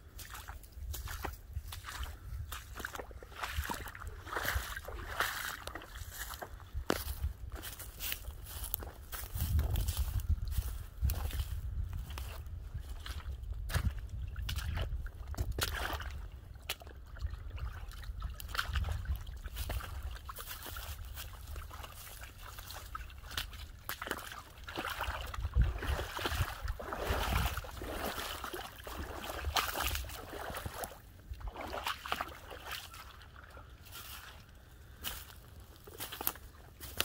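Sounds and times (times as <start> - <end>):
footsteps through leaf litter: 0.1 - 13.0, 19.5 - 25.1, 33.8 - 37.0
dogs splashing through water: 2.6 - 6.4, 14.4 - 34.4.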